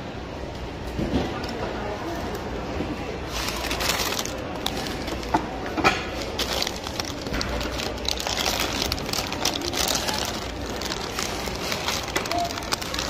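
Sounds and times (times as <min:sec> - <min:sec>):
checkout clatter and hum: 0:00.0 - 0:13.0
plastic packets crinkling: 0:03.3 - 0:13.0.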